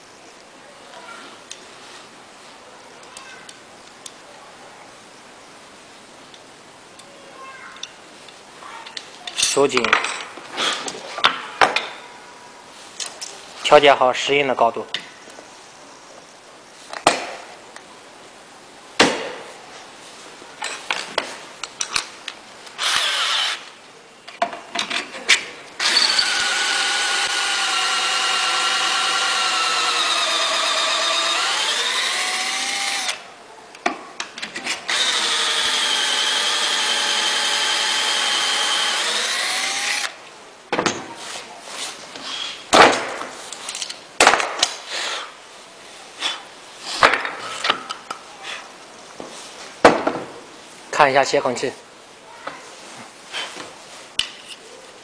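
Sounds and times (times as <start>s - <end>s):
power drill boring into wood: 22.8s - 23.7s, 25.8s - 33.2s, 34.9s - 40.2s.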